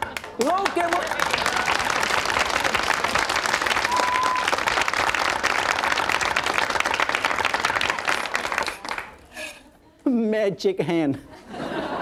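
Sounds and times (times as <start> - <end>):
audience applauding: 0.0 - 9.3
steady whistle: 3.8 - 4.6.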